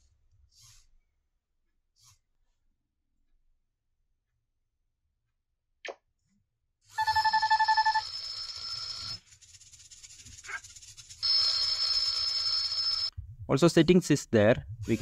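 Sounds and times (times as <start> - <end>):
electronic timer alarm ringing: 7.0 - 9.2, 11.2 - 13.1.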